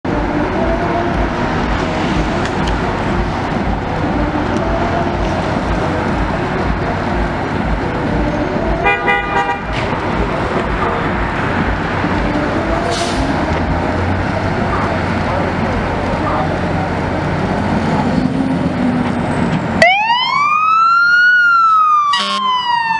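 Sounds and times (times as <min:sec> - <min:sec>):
diesel engine idling: 0:00.1 - 0:19.8
horn blast: 0:08.1 - 0:13.5, 0:22.1 - 0:22.6.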